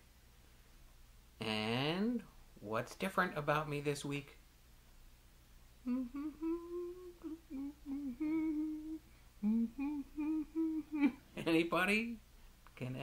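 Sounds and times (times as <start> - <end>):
man humming a tune: 5.8 - 12.2.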